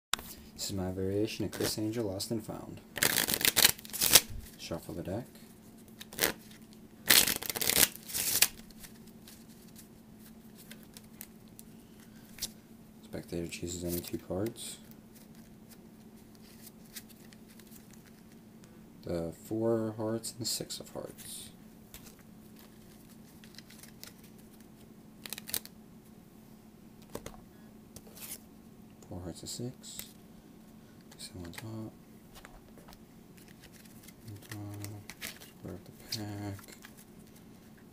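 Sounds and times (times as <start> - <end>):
faint steady hum: 0.2 - 37.9
playing cards being shuffled: 1.4 - 1.9, 3.0 - 4.6, 6.0 - 11.3, 21.9 - 25.7, 31.1 - 37.8
faint clicks of cards handled: 13.9 - 18.8, 21.9 - 25.7, 31.0 - 37.9.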